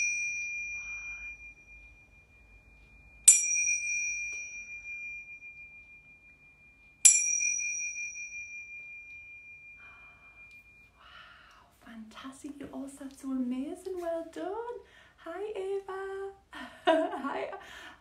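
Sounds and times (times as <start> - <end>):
tingsha cymbals ringing: 0.0 - 11.8.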